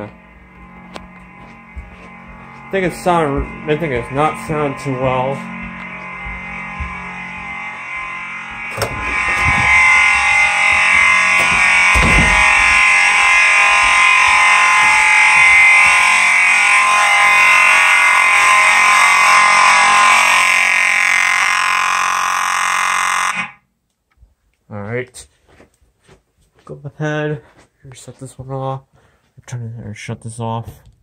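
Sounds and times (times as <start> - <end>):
low thumps: 0.0 - 17.6
vibrating fire alarm horn buzzing: 0.0 - 23.7.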